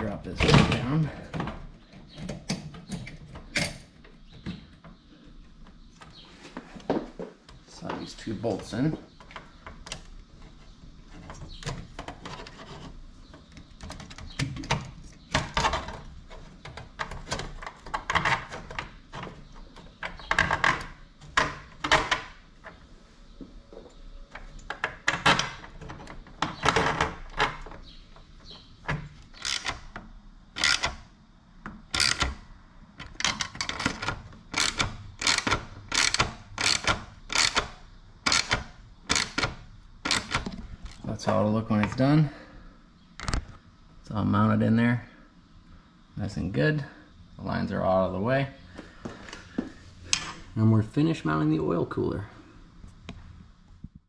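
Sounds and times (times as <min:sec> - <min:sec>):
hand wrench clicking strokes: 0:32.0 - 0:32.4, 0:33.2 - 0:39.5.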